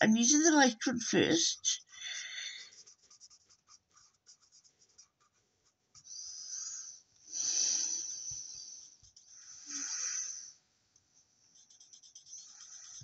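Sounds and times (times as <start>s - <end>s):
scratchy marker strokes: 1.6s - 6.5s, 8.1s - 10.4s, 11.5s - 13.0s
marker rubbing on cardstock: 1.7s - 6.2s, 8.3s - 9.6s, 11.6s - 13.0s.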